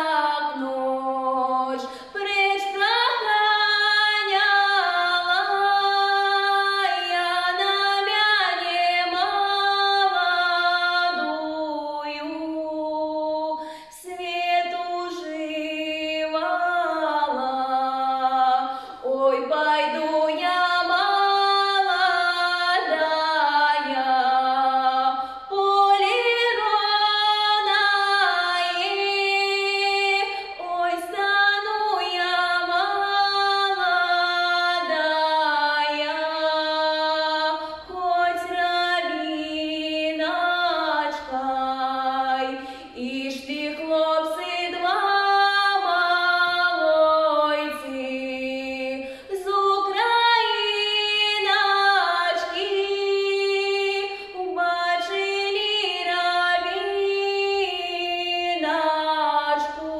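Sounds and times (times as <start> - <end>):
woman singing unaccompanied: 0.0 - 59.9.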